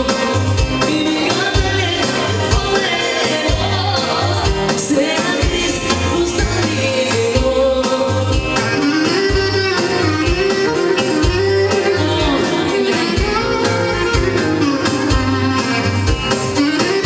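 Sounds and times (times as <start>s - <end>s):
folk dance band playing: 0.0s - 17.0s
clarinet melody: 8.5s - 17.0s.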